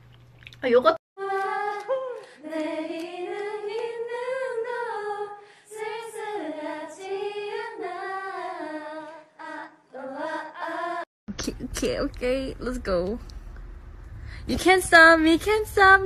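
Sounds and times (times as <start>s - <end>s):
woman singing unaccompanied: 1.2s - 4.7s, 14.5s - 16.0s.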